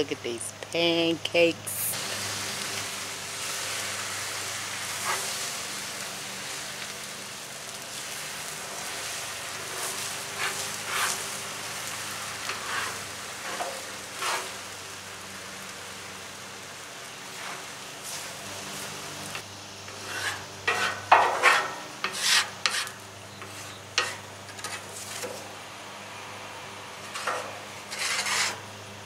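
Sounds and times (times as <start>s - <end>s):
eggs sizzling on a griddle: 1.7s - 26.1s, 26.9s - 28.7s
wooden spatula scraping and tapping: 9.7s - 11.2s, 12.4s - 14.5s, 19.3s - 25.5s, 27.0s - 28.6s.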